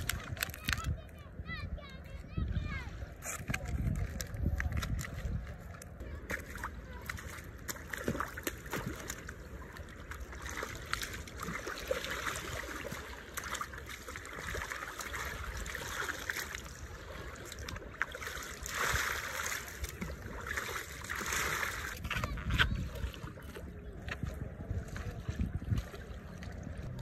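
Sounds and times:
feet wading in shallow water: 2.6s - 27.0s.

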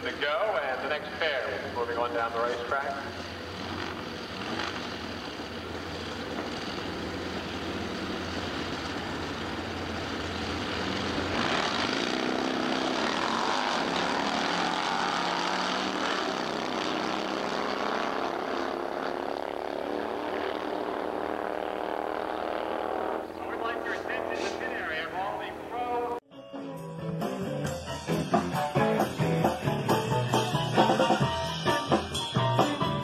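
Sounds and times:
drag racing motorcycles: 0.0s - 26.2s.

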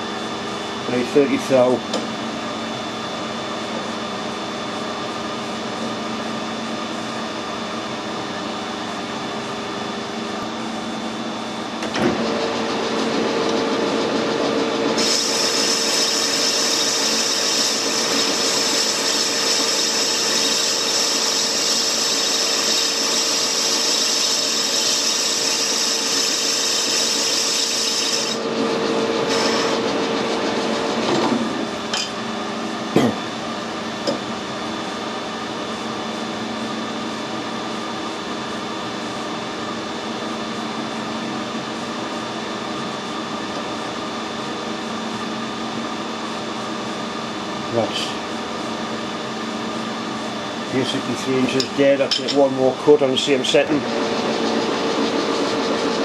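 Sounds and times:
metal lathe humming: 11.6s - 32.2s, 47.6s - 56.0s
loud hiss of cutting: 15.0s - 22.0s.

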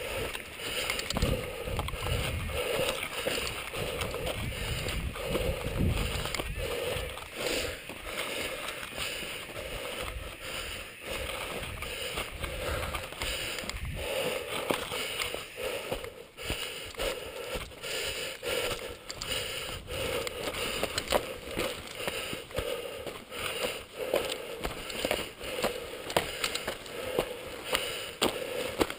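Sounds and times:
bike clicks and rattles: 0.0s - 28.9s
tyres crunching on dirt: 0.0s - 28.9s
wind on microphone: 1.1s - 2.6s, 3.8s - 7.1s, 13.6s - 14.1s.

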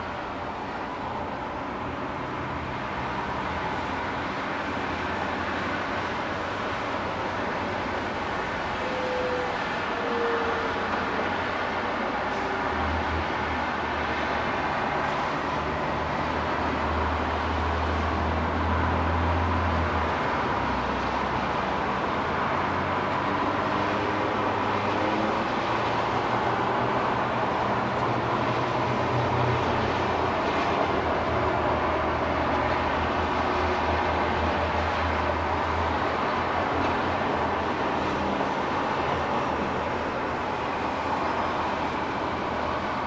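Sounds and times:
low engine drone: 0.0s - 15.8s
distant road traffic: 0.0s - 43.0s.

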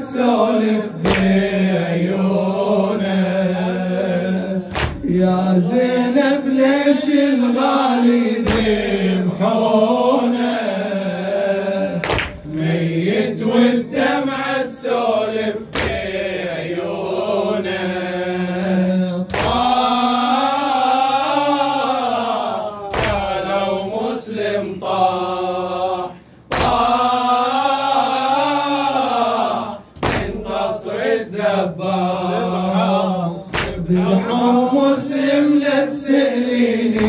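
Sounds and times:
man chanting a lament: 0.0s - 16.2s, 29.2s - 37.0s
sharp thumps marking the beat: 4.7s - 5.2s, 19.3s - 19.8s, 26.5s - 27.0s, 30.0s - 30.5s.

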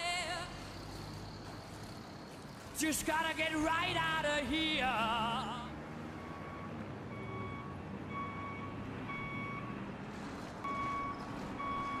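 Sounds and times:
truck reversing alarm beeping: 5.9s - 9.8s, 10.6s - 12.0s.

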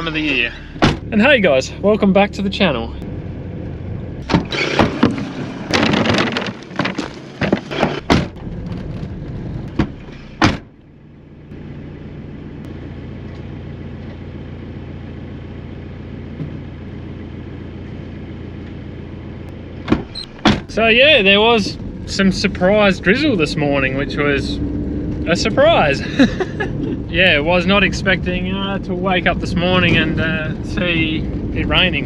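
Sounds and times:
car engine idling: 0.0s - 5.8s, 8.3s - 32.0s
car road noise on dirt: 0.0s - 32.0s.

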